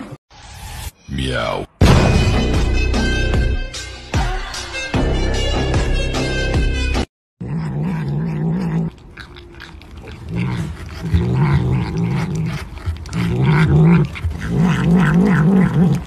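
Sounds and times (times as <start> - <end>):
cat growling low: 7.4 - 16.0
cat licking and smacking: 8.9 - 16.0.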